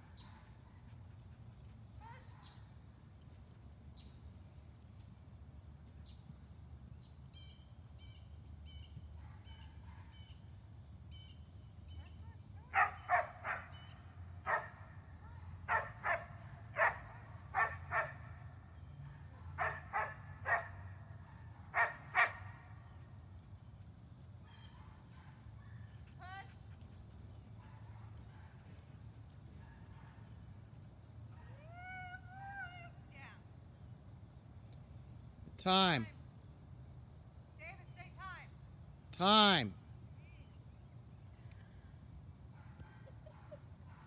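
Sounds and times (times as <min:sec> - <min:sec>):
dog barking: 0:12.7 - 0:14.8, 0:15.7 - 0:18.3, 0:19.0 - 0:22.6, 0:27.6 - 0:28.7, 0:29.6 - 0:30.3, 0:42.5 - 0:44.0.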